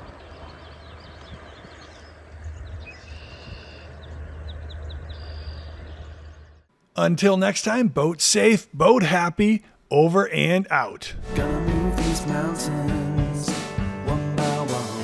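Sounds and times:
steady low rumble: 11.1 - 13.5.

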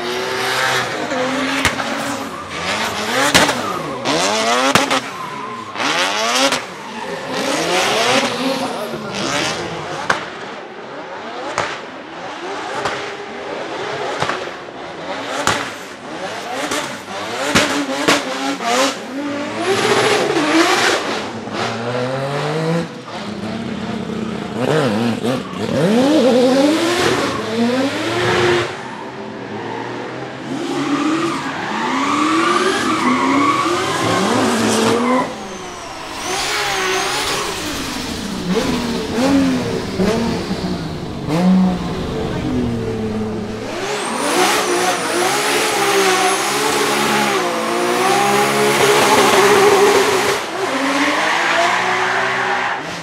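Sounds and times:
car engines revving: 0.0 - 53.0
tyres squealing: 32.4 - 46.8.

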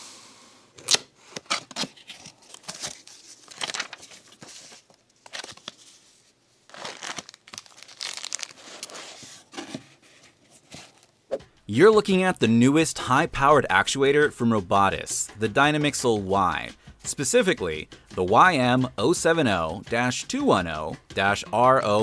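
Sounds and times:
plastic packet crinkling: 2.0 - 5.8, 6.7 - 9.2
cardboard sliding and scraping: 8.6 - 11.1.

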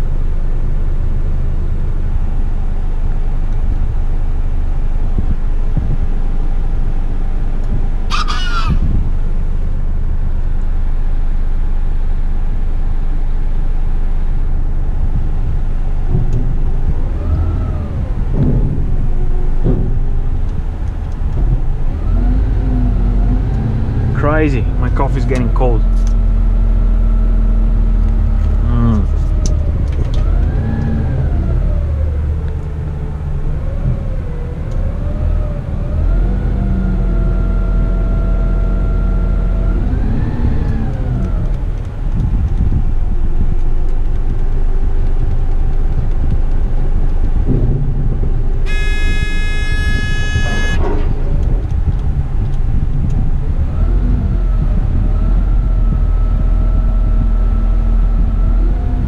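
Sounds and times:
truck engine and hydraulics revving: 0.0 - 59.0
loud electronic tone: 48.6 - 51.1.

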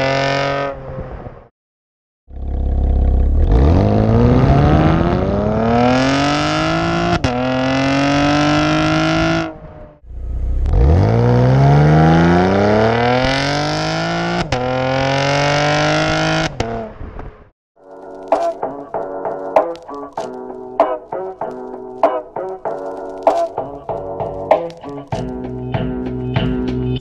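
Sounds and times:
car engine revving at full throttle: 0.0 - 1.0, 2.4 - 17.2
exhaust crack on upshift: 16.5 - 27.0.

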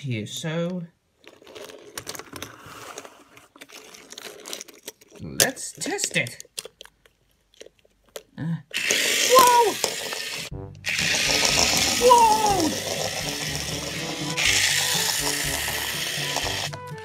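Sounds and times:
toy train motor whirring: 1.2 - 5.2, 8.7 - 17.0.

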